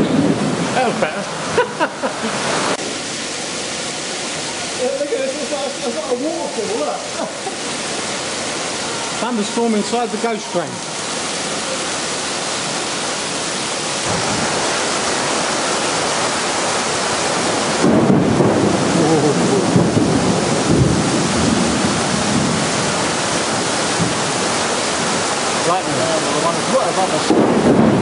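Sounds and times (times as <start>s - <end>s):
thunder rumble: 0.0s - 1.2s, 14.0s - 25.6s, 27.2s - 28.0s
heavy rain pouring: 0.0s - 28.0s.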